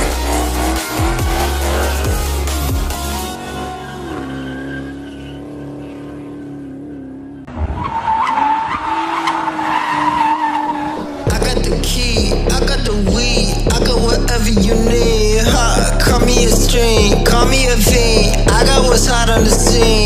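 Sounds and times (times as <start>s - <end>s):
music with heavy bass: 0.0s - 4.3s, 11.0s - 20.0s
tyres squealing: 0.0s - 6.8s, 7.8s - 11.3s
car engine revving: 0.0s - 20.0s.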